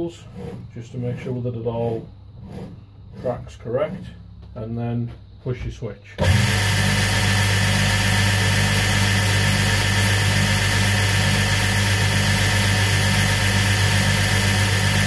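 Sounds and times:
belt grinder running: 6.2s - 15.0s.

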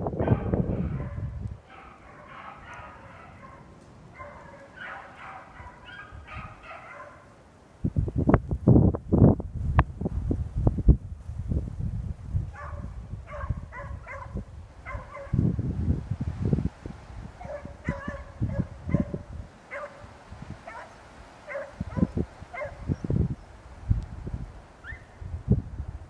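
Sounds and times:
hound pups barking and baying: 0.2s - 7.4s, 12.5s - 15.4s, 17.4s - 23.5s, 24.8s - 25.2s.

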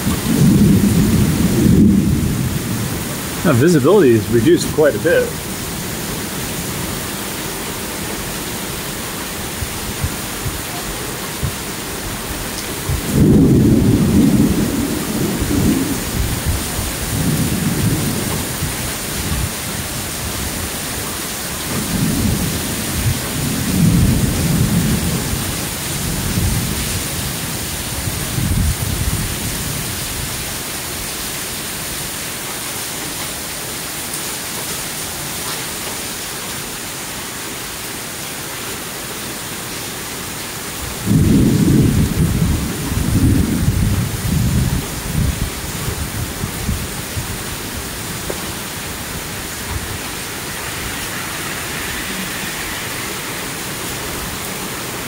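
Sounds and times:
thunder rumbling: 0.0s - 5.6s, 12.8s - 19.6s, 41.0s - 54.7s
heavy rain pouring: 0.0s - 55.0s.

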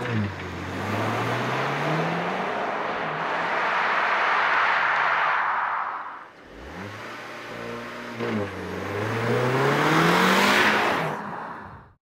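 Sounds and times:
car engine starting and revving: 0.0s - 5.5s, 6.2s - 11.9s.

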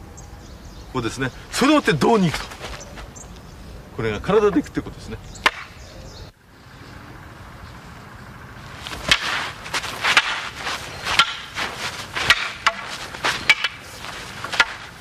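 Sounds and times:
rustling movement: 1.8s - 3.8s, 8.4s - 15.0s
wooden staffs clacking together: 8.9s - 15.0s.

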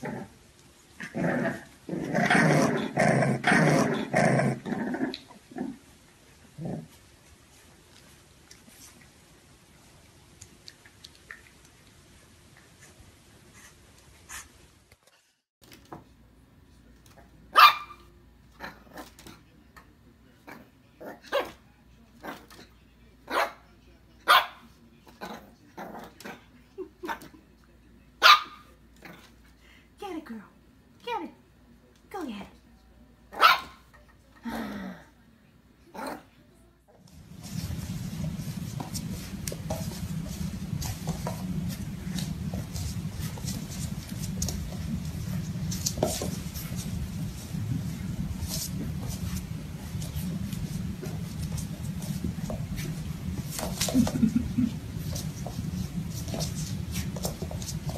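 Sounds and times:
puppy barking and yapping: 17.6s - 18.0s, 33.4s - 33.8s
steady low rumble: 37.1s - 57.9s.

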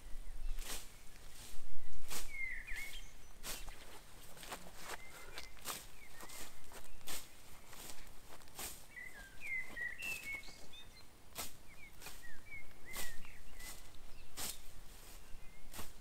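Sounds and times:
birds chirping: 0.0s - 16.0s
scythe swishing through grass: 0.5s - 4.7s, 5.6s - 9.4s, 11.3s - 16.0s.

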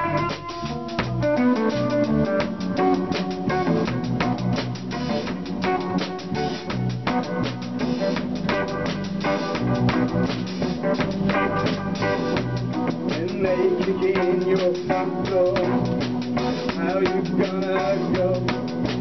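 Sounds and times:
drum kit beat: 0.0s - 19.0s
electric guitars: 0.0s - 19.0s
man singing: 13.0s - 19.0s.

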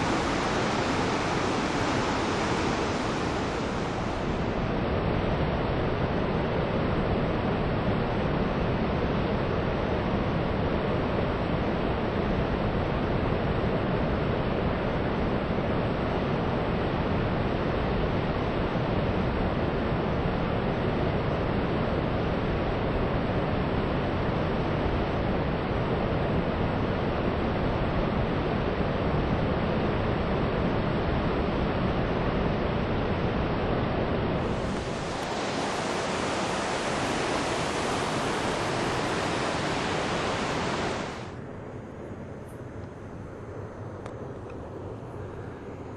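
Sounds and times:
waterfall rushing: 0.0s - 4.7s, 34.4s - 41.4s.

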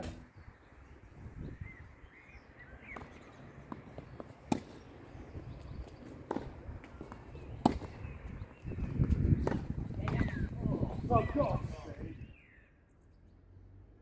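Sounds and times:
tennis ball struck by racket: 2.9s - 4.9s, 6.1s - 8.0s, 9.0s - 10.4s
ball bouncing on hard court: 6.3s - 8.0s, 9.0s - 10.5s.

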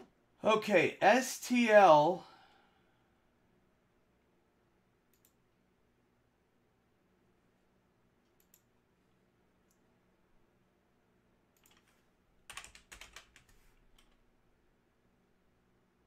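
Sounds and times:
keyboard typing: 11.6s - 14.2s.

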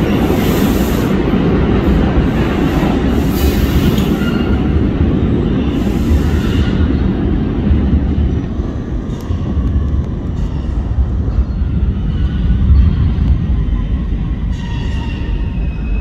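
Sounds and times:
subway train rumbling in tunnel: 0.0s - 16.0s.

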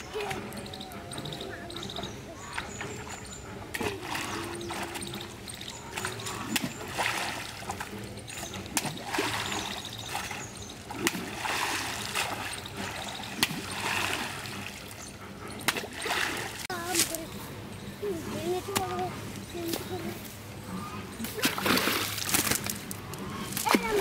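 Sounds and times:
fish thrashing and slapping: 2.6s - 15.0s, 21.2s - 24.0s
net splashing in water: 6.0s - 7.9s, 8.7s - 14.8s.

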